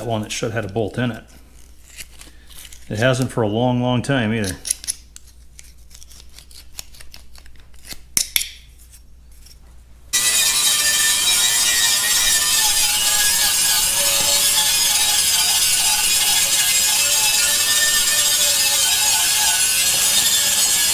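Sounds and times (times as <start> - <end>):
angle grinder wire brush whirring: 10.1 - 20.9.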